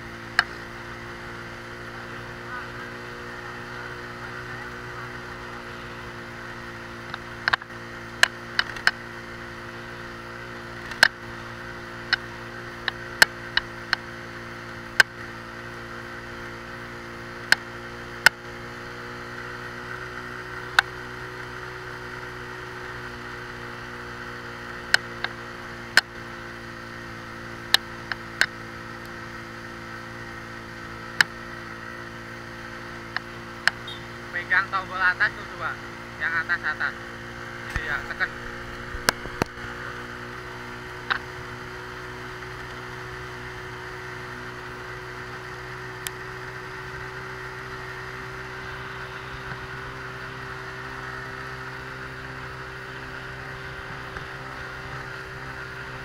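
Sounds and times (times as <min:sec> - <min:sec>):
motorcycle engine running: 0:00.0 - 0:56.0
sharp clicks and knocks: 0:07.1 - 0:09.0, 0:10.8 - 0:11.2.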